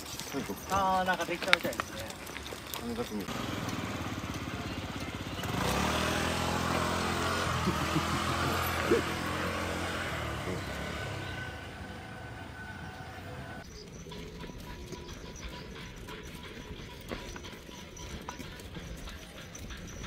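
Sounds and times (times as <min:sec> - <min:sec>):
vehicle passing by: 0:03.2 - 0:13.6.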